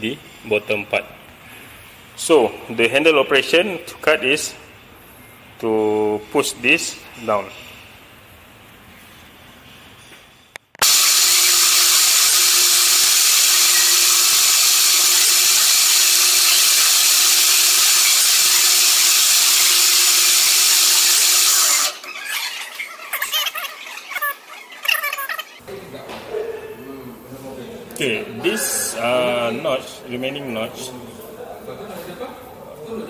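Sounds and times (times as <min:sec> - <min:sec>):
lathe motor hum: 0:10.8 - 0:22.1
metal lathe cutting hiss and squeal: 0:10.8 - 0:23.5.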